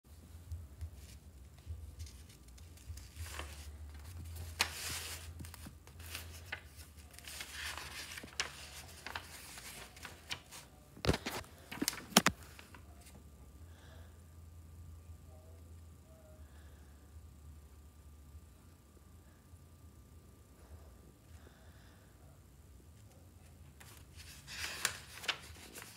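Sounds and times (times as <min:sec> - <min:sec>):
paper pages rustling: 0:00.8 - 0:13.2, 0:23.8 - 0:25.9.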